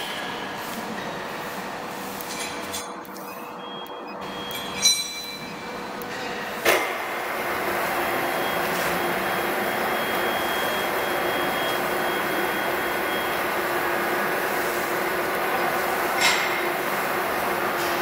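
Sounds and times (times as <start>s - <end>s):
machine hum and hiss: 0.0s - 18.0s.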